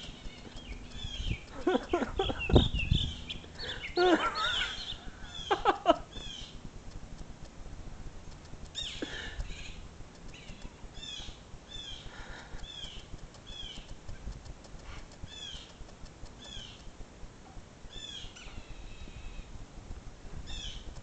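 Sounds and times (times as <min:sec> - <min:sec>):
blue jays calling: 0:00.0 - 0:06.6, 0:08.8 - 0:14.0.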